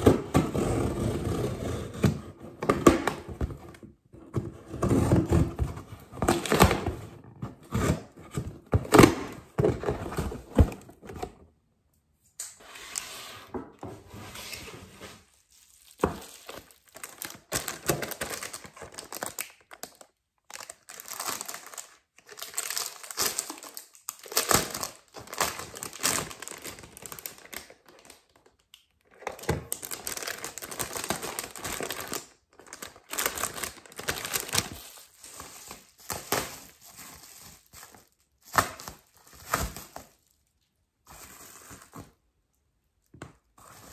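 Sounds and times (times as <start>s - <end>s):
plastic wrapping crinkling: 15.2s - 42.2s.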